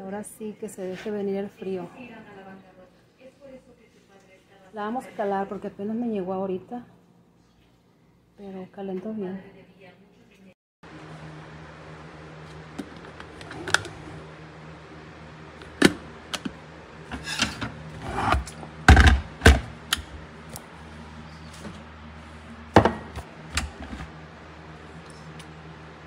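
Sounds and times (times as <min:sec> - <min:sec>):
steady low hum: 0:10.9 - 0:26.0
kettle clicks and clunks: 0:15.6 - 0:20.2.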